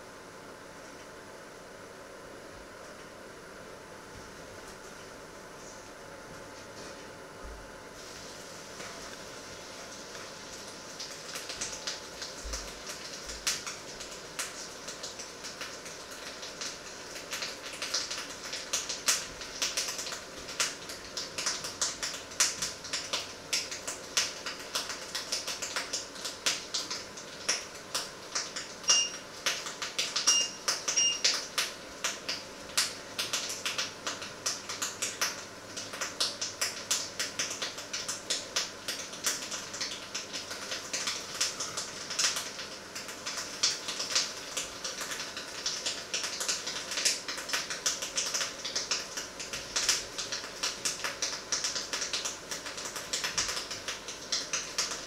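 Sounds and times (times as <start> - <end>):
short electronic beeps: 28.9 - 29.2, 30.3 - 31.2.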